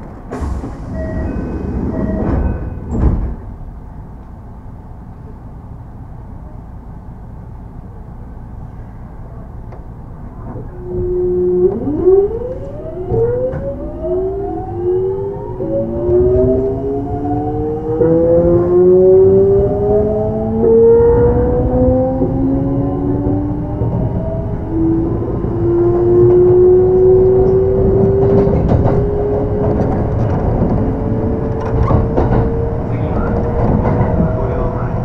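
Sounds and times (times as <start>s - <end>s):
train inverter whine: 0.0s - 35.0s
train running noise: 0.0s - 35.0s
thump: 0.3s - 1.2s, 2.0s - 3.6s.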